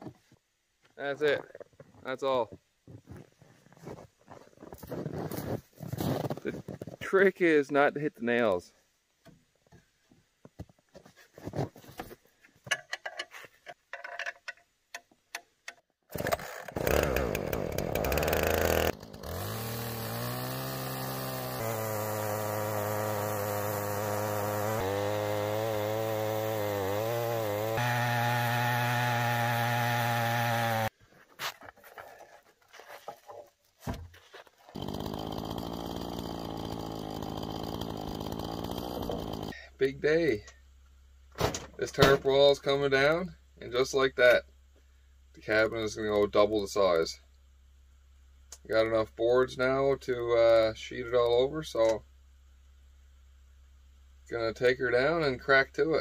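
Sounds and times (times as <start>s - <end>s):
knocks and clatter of handling: 9.6s - 15.2s
chainsaw cutting log: 16.1s - 30.9s, 34.7s - 39.6s.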